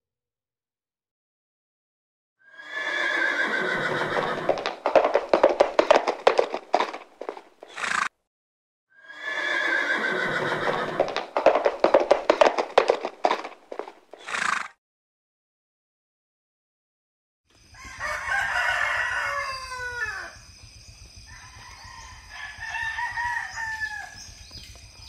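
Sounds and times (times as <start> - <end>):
horse whinnying: 2.5 - 8.1, 9.0 - 14.8.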